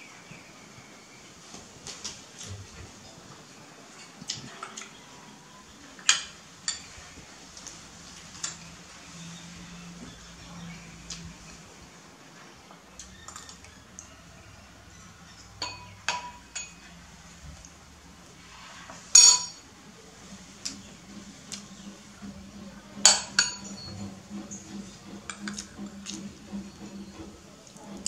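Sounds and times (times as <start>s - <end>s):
metal spoon clinking on bowls: 6.0s - 7.0s, 8.3s - 8.7s, 15.3s - 17.0s, 19.2s - 19.6s, 23.1s - 24.0s.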